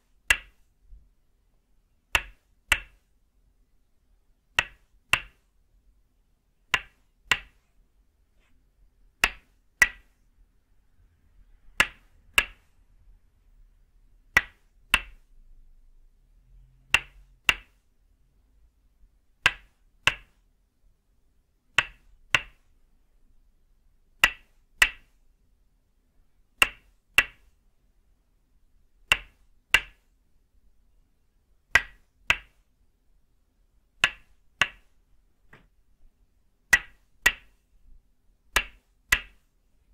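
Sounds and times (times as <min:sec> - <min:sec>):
wooden mallet knocking peg: 0:06.7 - 0:07.6, 0:11.7 - 0:12.7, 0:14.3 - 0:15.2.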